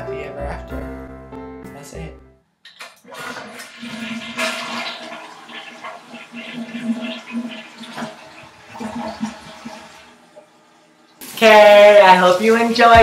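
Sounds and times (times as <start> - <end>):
toilet flushing: 2.7 - 13.0.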